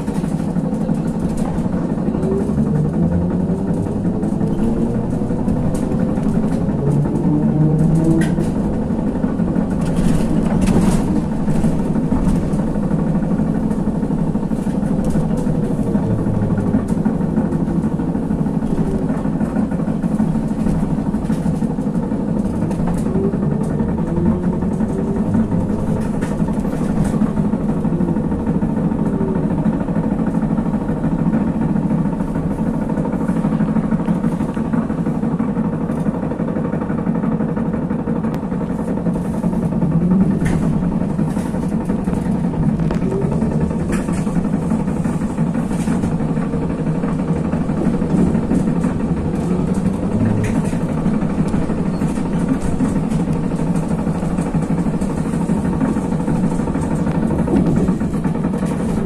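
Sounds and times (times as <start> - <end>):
trolleybus running gear rumble: 0.0 - 59.0
rattles: 38.6 - 59.0.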